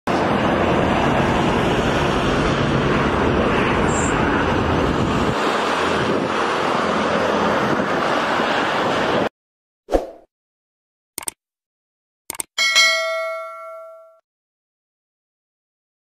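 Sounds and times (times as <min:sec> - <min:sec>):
wind on microphone: 0:01.4 - 0:09.3.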